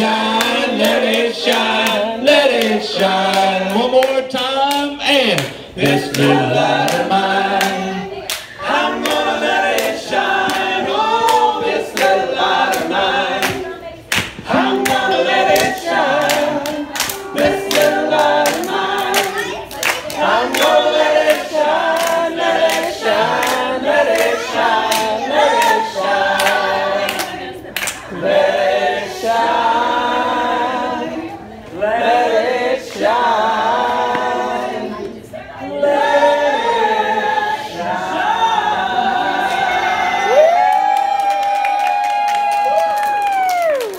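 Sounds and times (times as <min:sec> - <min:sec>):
group singing: 0:00.0 - 0:40.7
hands clapping: 0:00.4 - 0:25.8, 0:26.4 - 0:28.0, 0:40.7 - 0:43.9.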